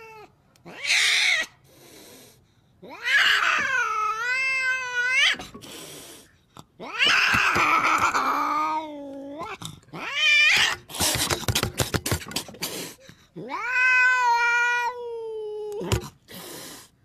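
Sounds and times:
cat yowling: 0:00.0 - 0:01.6, 0:02.8 - 0:05.4, 0:06.8 - 0:10.9, 0:13.4 - 0:16.0
scratchy noise and clicks: 0:11.0 - 0:12.6.

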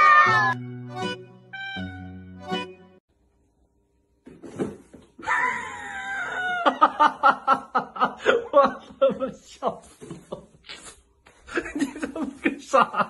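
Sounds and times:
person screaming: 0:00.0 - 0:00.6
person laughing hard: 0:05.2 - 0:10.5, 0:11.5 - 0:13.0.

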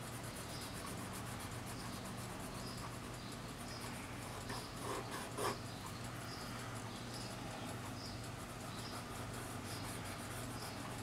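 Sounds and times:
cotton swab rubbing on paper: 0:00.0 - 0:05.6, 0:07.7 - 0:11.0.

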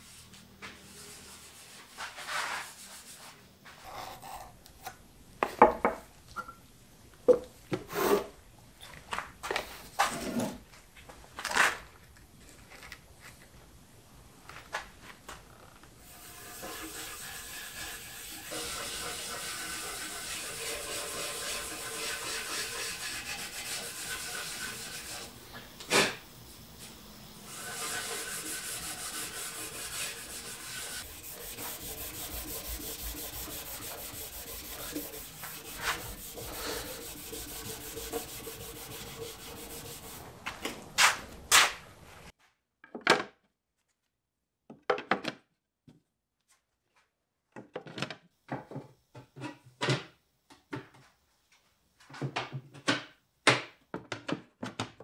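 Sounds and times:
hand rubbing wooden panel: 0:27.7 - 0:40.2.

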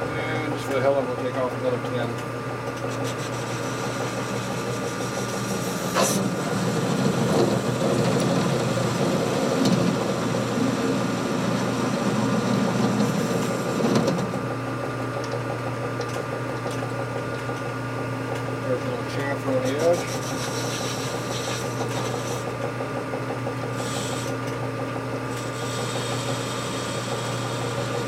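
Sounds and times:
metal lathe humming: 0:02.5 - 0:28.0
lathe tool cutting steel: 0:03.0 - 0:14.4, 0:25.3 - 0:28.0.

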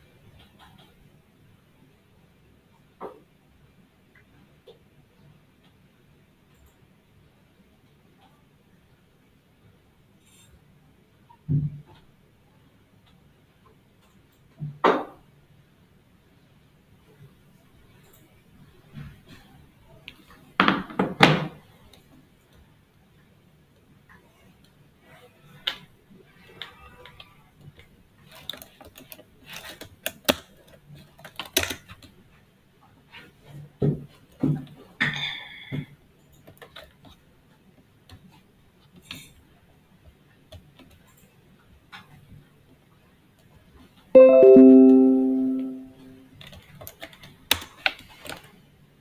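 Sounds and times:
computer notification chime: 0:44.2 - 0:46.2.

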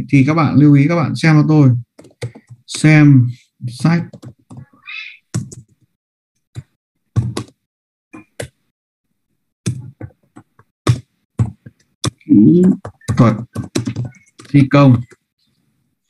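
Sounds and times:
keyboard keys clicking: 0:04.1 - 0:04.7, 0:11.4 - 0:15.2.

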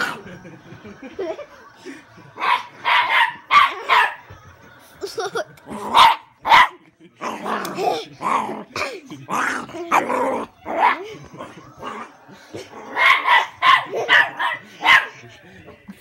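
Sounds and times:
dog growling and barking: 0:00.0 - 0:00.3, 0:05.6 - 0:15.2.

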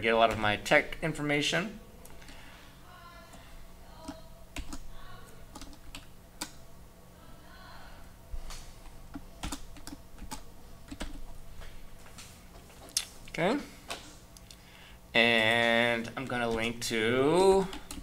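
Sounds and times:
computer keyboard typing: 0:04.0 - 0:06.6, 0:09.1 - 0:11.3, 0:15.4 - 0:16.8, 0:17.5 - 0:18.0.

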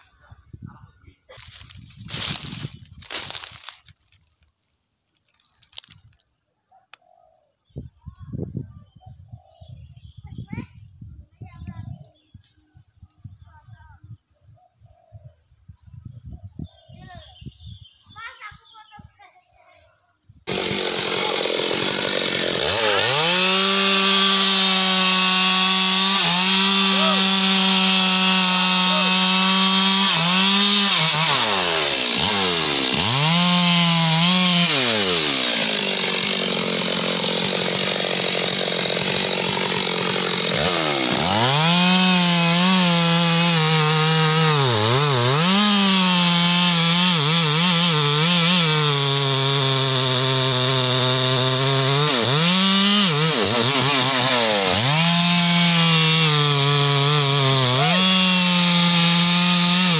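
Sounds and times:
chainsaw cutting wood: 0:01.5 - 0:04.0, 0:20.5 - 0:59.9.

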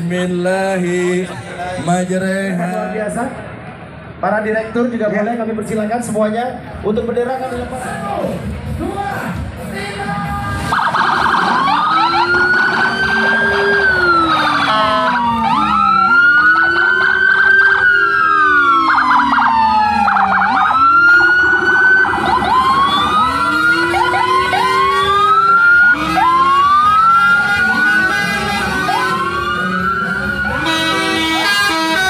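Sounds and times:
police sirens wailing: 0:10.1 - 0:32.0
rapid siren warbling: 0:10.6 - 0:31.8.

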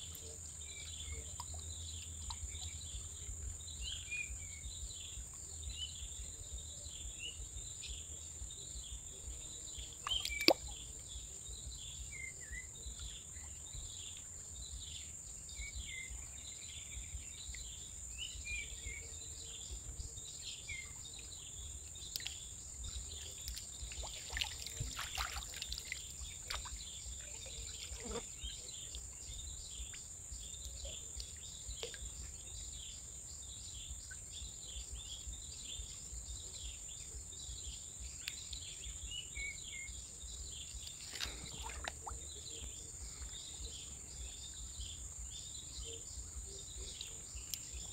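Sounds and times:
bird chirps: 0:08.8 - 0:14.2.

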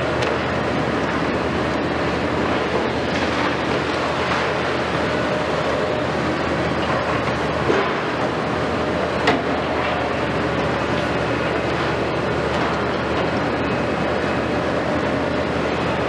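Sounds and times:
excavator diesel engines running: 0:00.0 - 0:16.0.

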